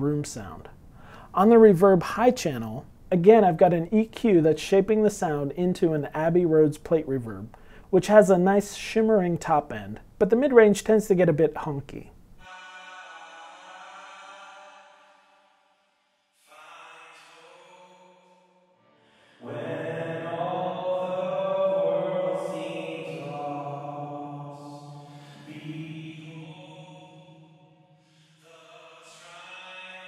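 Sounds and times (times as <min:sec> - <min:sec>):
sung vocal with reverb: 0:12.4 - 0:15.2, 0:16.4 - 0:18.5, 0:19.1 - 0:30.0.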